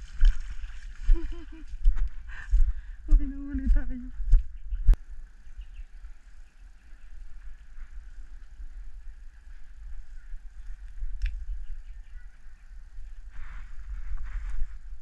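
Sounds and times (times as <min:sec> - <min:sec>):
wind rumble: 0:00.0 - 0:15.0
microphone handling noise: 0:13.3 - 0:15.0.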